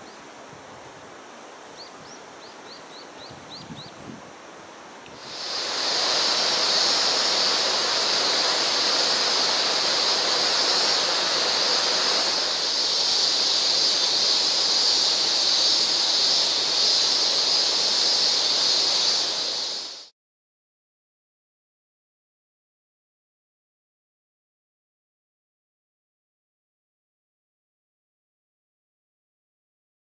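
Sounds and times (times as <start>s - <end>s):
river water rushing over rocks: 5.2s - 20.0s.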